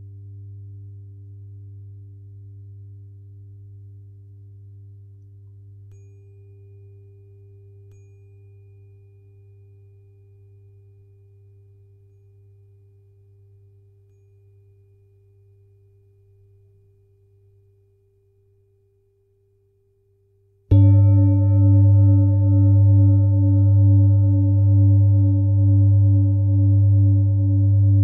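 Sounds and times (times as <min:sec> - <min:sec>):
tuning fork ringing: 0:05.8 - 0:18.1, 0:20.7 - 0:28.0
steady low drone: 0:20.8 - 0:28.0.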